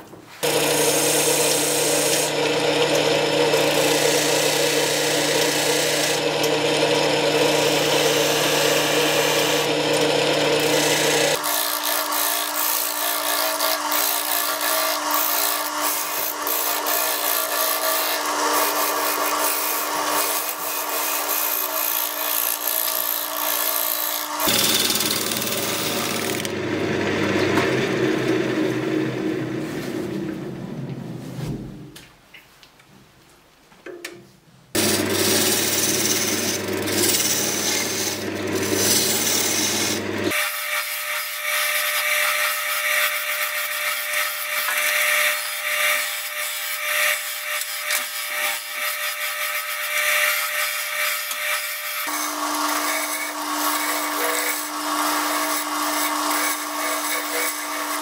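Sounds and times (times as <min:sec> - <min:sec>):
lathe motor hum: 0:00.4 - 0:30.3, 0:34.8 - 0:40.4, 0:52.1 - 0:58.0.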